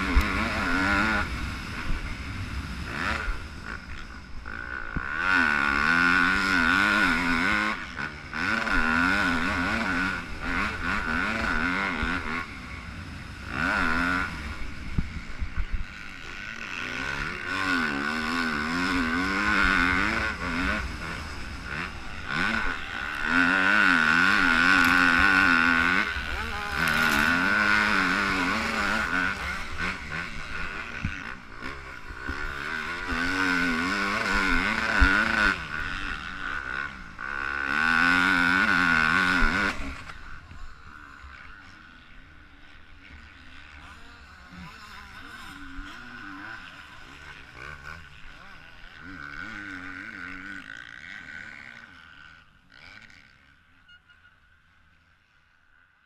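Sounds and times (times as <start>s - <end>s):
motocross engine revving: 0.0s - 55.9s.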